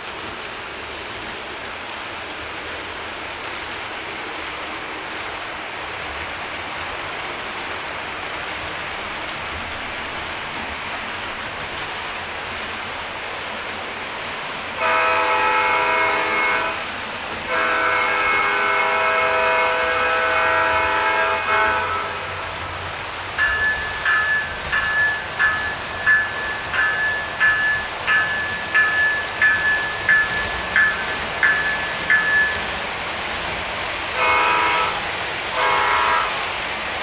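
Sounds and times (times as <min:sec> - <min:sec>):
model train running: 0:00.0 - 0:37.0
train chord horn blasts: 0:14.8 - 0:16.9, 0:17.5 - 0:22.5, 0:34.1 - 0:36.5.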